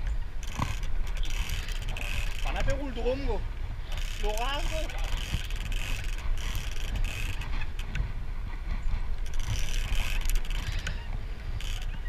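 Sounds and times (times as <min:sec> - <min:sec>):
boat engine rumble: 0:00.0 - 0:12.0
wind rumble: 0:00.0 - 0:12.0
fishing reel clicking: 0:00.4 - 0:02.8, 0:03.9 - 0:08.0, 0:09.2 - 0:11.0, 0:11.6 - 0:12.0.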